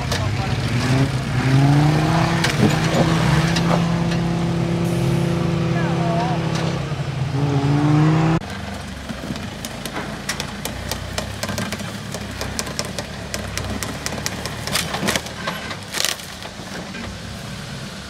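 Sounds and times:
engine running at low revs: 0:00.0 - 0:15.7
sharp clicks and knocks: 0:09.0 - 0:17.1.

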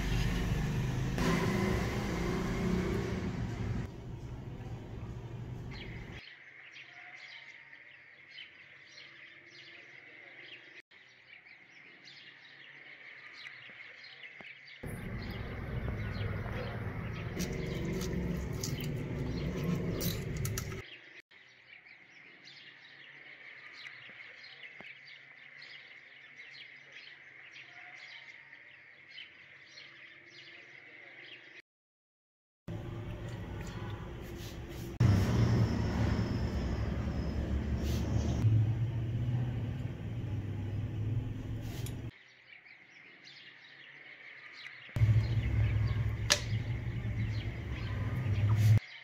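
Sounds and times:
birds chirping: 0:00.0 - 0:06.2, 0:14.8 - 0:21.0, 0:32.7 - 0:42.1, 0:44.9 - 0:49.0.

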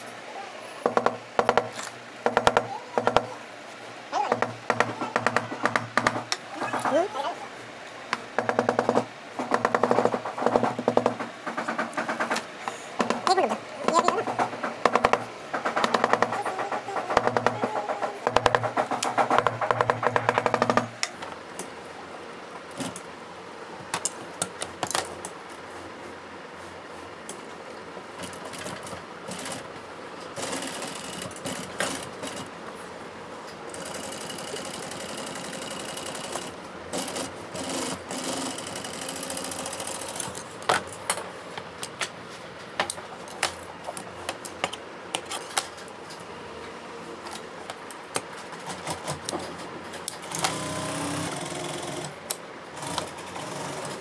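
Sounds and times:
sewing machine running: 0:28.3 - 0:29.7, 0:30.4 - 0:32.5, 0:33.7 - 0:40.4, 0:50.2 - 0:54.0.

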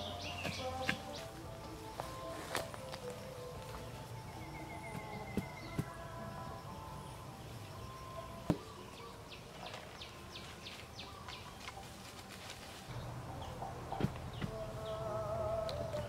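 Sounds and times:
bird chirping: 0:00.0 - 0:16.0
bamboo poles knocking: 0:00.4 - 0:01.2, 0:13.9 - 0:14.7.

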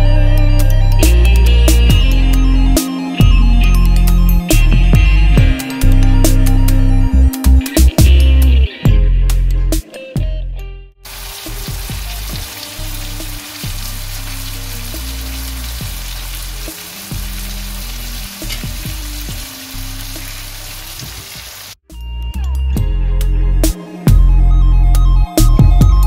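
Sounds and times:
fish sizzling in oil: 0:11.1 - 0:21.8
electronic background music: 0:11.4 - 0:20.8.

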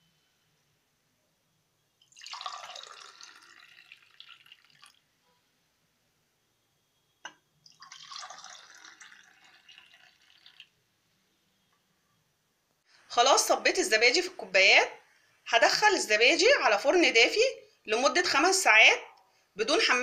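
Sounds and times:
milk pouring into glass: 0:02.0 - 0:05.1, 0:07.3 - 0:10.8.

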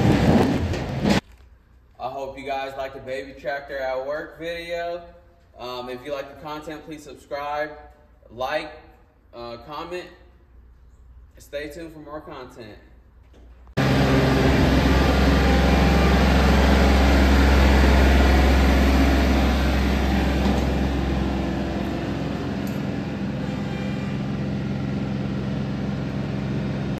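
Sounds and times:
tractor diesel engine running: 0:13.8 - 0:27.0.

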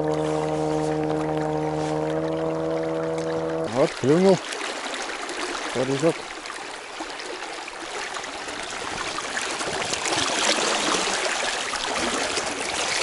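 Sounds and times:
river water rushing and splashing: 0:00.0 - 0:13.0.

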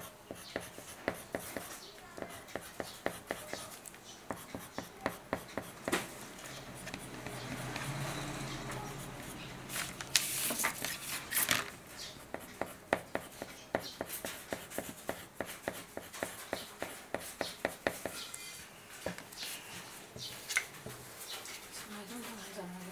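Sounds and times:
pencil scratching on paper: 0:00.0 - 0:18.2.

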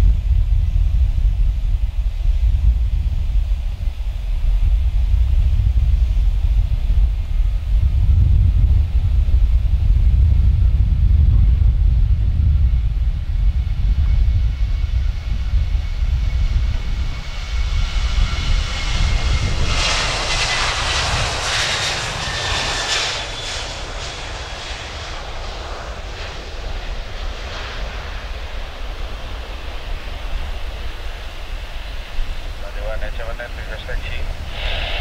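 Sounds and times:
jet engines roaring at takeoff: 0:00.0 - 0:35.0.

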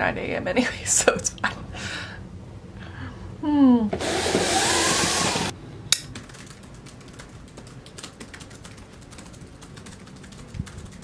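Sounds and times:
laptop keyboard typing: 0:06.1 - 0:11.0.

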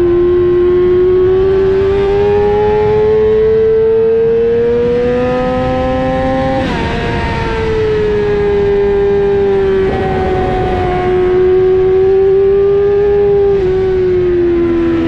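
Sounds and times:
motorcycle engine at high revs: 0:00.0 - 0:15.0.

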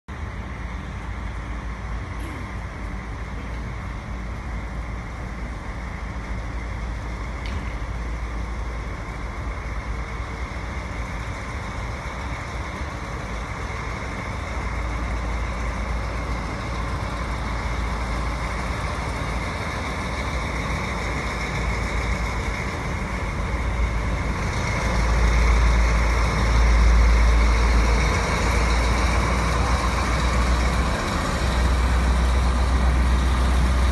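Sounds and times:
diesel locomotive engine rumble: 0:00.1 - 0:33.9.

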